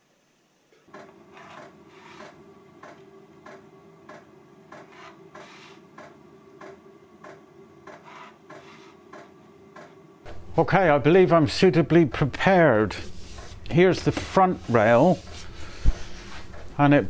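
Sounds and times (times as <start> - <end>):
steady low hum: 0.9 - 17.0
pencil scratching on wood: 1.3 - 2.4, 4.8 - 5.8, 7.9 - 9.0.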